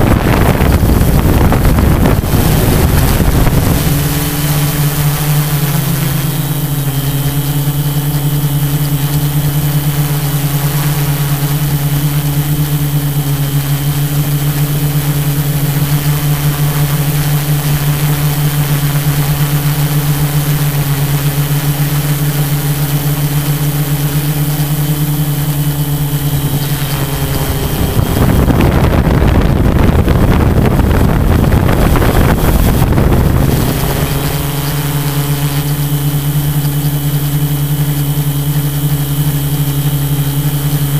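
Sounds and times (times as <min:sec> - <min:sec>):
loud rushing noise: 0:00.0 - 0:06.9, 0:26.4 - 0:36.1
drone propellers humming: 0:00.0 - 0:40.9.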